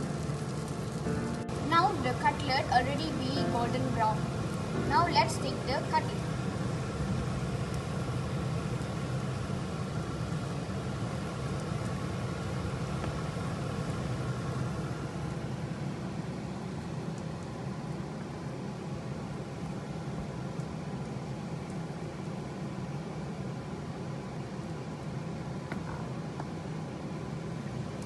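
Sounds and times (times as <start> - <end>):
food sizzling in oil: 0.0 - 15.2
kitchen fan humming: 0.0 - 28.0.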